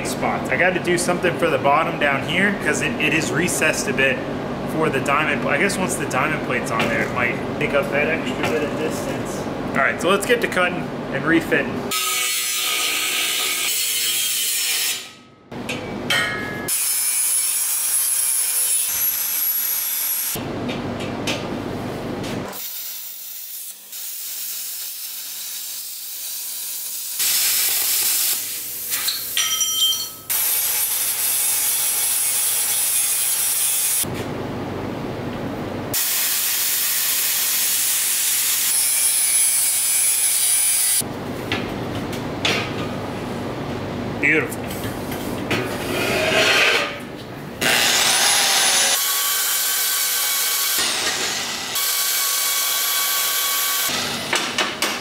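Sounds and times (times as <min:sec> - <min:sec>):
angle grinder cutting steel: 0:11.9 - 0:15.2, 0:16.7 - 0:20.4, 0:36.0 - 0:41.0, 0:47.6 - 0:54.4.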